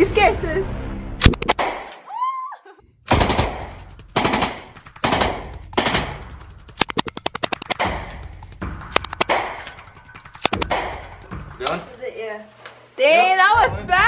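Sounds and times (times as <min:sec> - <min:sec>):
automatic gunfire bursts: 0:03.1 - 0:06.2.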